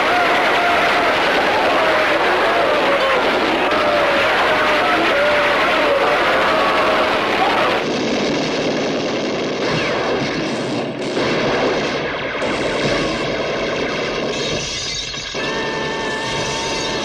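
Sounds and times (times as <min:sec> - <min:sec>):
gunshots: 0:00.0 - 0:17.0
machine gun firing: 0:06.5 - 0:17.0.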